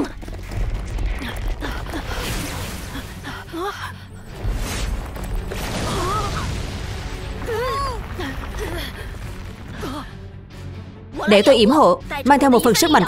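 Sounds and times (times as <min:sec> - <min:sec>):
cartoon explosion: 0:04.4 - 0:09.5.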